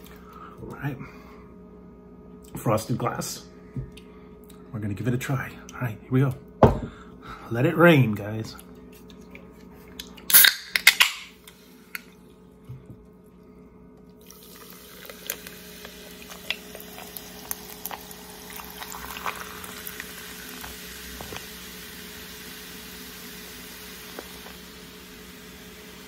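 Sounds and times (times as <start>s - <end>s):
can cracking open with hiss: 10.3s - 11.2s, 14.5s - 21.7s, 23.9s - 24.8s
drink pouring and fizzing: 14.2s - 26.0s.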